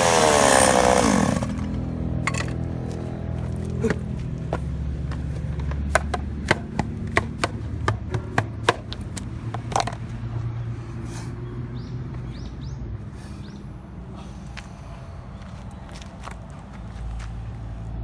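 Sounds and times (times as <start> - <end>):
chainsaw engine idling: 0.0 - 2.5.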